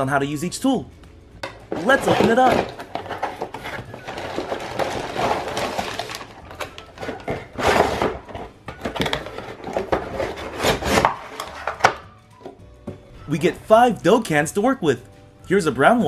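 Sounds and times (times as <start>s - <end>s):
cardboard scraping: 1.7s - 12.0s
crinkling plastic: 1.8s - 11.8s.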